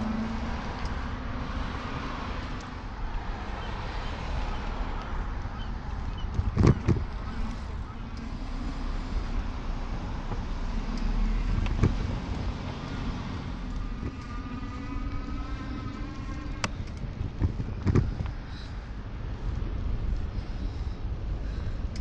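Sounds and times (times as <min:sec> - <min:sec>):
motor vehicle running close by: 0:00.0 - 0:21.0
low rumble: 0:04.5 - 0:22.0.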